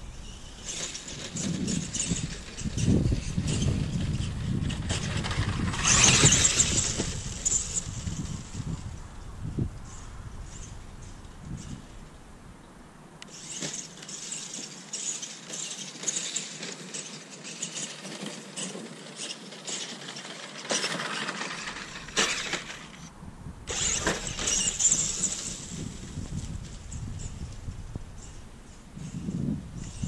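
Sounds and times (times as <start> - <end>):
electric motors whining: 0.1 - 9.0, 13.2 - 23.1, 23.7 - 28.4.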